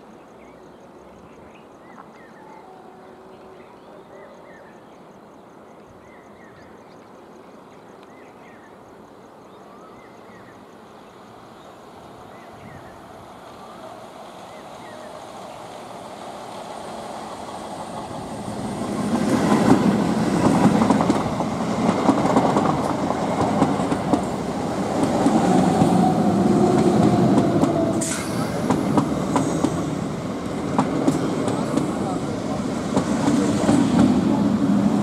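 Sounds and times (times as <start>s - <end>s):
train passing with rumble: 10.3s - 35.0s.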